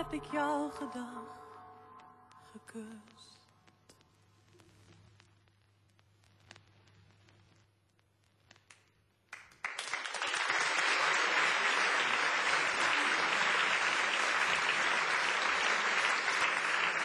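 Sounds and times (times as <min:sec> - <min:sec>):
audience applauding: 0:09.3 - 0:17.0.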